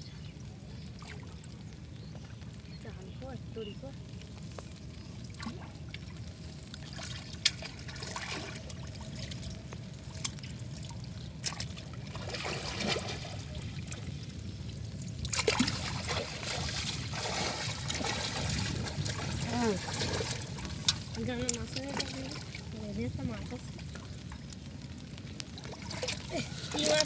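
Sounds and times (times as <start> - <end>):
water trickling and sloshing: 0.0 - 27.0
sharp water splashes: 10.1 - 14.1, 15.0 - 24.5, 25.5 - 27.0.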